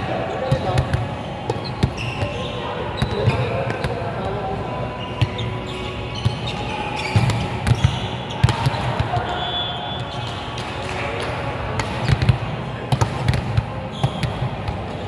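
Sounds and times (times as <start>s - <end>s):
busy gym background noise: 0.0s - 15.0s
volleyballs struck and bouncing: 0.5s - 2.4s, 6.2s - 15.0s.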